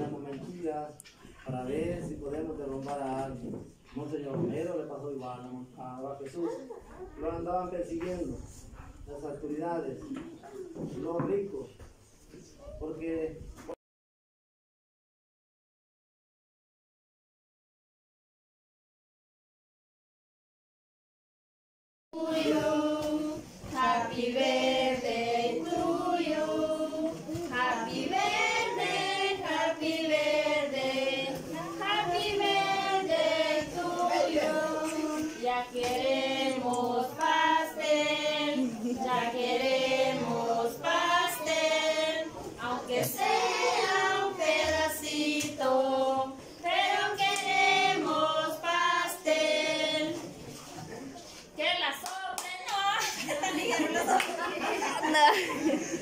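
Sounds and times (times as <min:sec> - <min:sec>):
group of voices singing together: 0:22.2 - 0:50.6.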